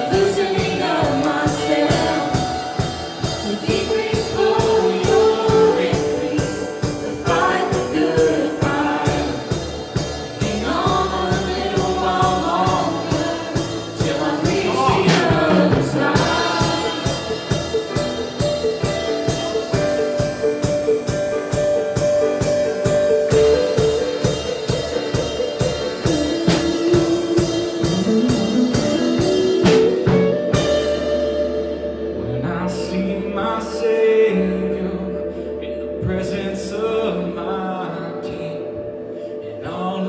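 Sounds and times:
women singing gospel song: 0.0 - 17.6
steady beat: 0.0 - 30.9
guitar: 0.0 - 40.0
keyboard: 0.0 - 40.0.

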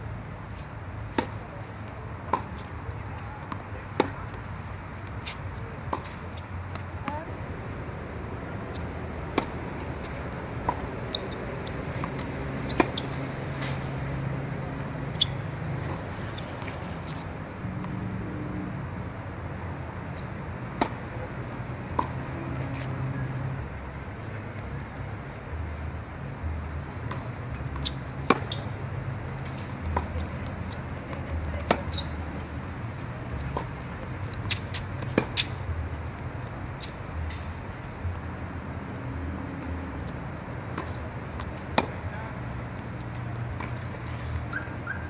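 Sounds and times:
balls bouncing on hard court: 1.1 - 4.4, 8.2 - 17.2, 29.4 - 32.2
tennis balls struck by racquets: 1.1 - 7.4, 8.2 - 18.0, 20.0 - 23.6, 27.0 - 37.6, 39.0 - 45.0.

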